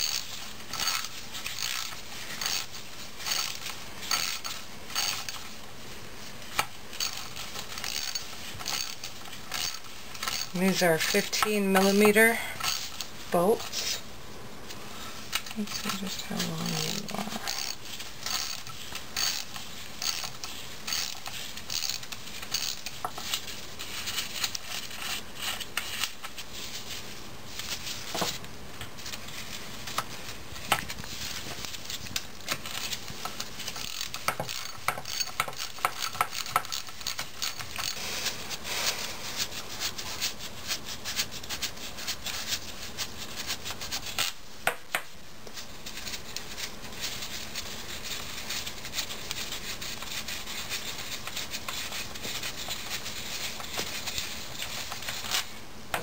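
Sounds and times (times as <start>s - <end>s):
ratchet wrench clicking: 7.8s - 10.5s, 19.2s - 20.3s, 20.9s - 22.8s.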